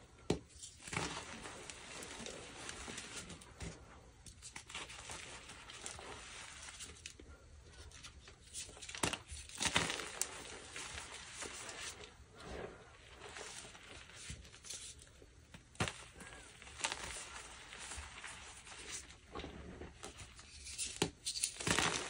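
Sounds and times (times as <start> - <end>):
chalk crunching and cracking: 15.8 - 22.0.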